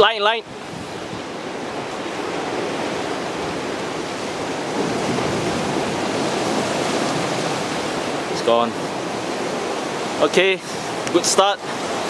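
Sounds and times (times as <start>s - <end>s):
surf breaking against rocks: 0.4s - 12.0s.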